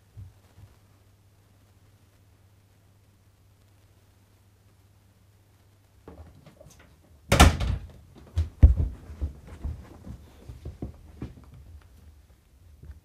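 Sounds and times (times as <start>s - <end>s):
person running footsteps: 8.1s - 11.8s.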